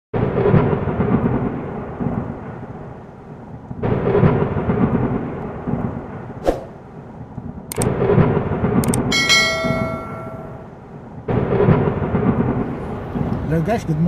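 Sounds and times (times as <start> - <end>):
rolling thunderclaps: 0.2 - 14.0
whoosh: 6.4 - 6.8.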